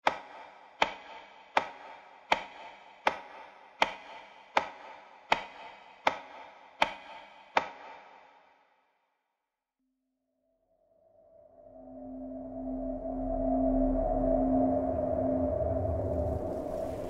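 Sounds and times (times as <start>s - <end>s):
sharp ringing knocks: 0.0s - 8.2s.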